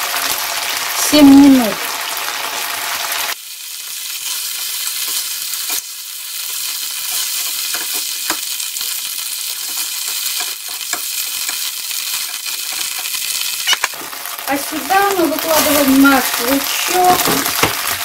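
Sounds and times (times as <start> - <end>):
meat sizzling in oil: 0.0 - 18.0
spatula tapping and scraping pan: 6.6 - 8.5, 9.6 - 13.2.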